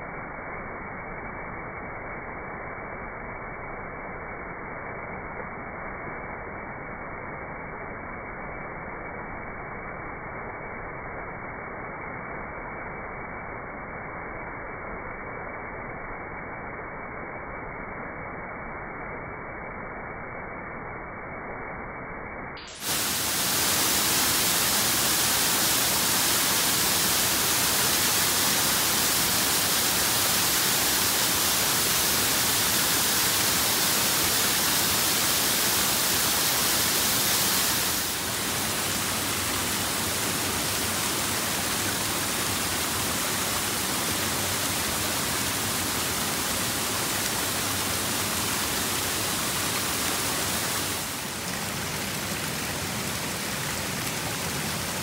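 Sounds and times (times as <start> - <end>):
river water rushing: 22.7 - 55.0.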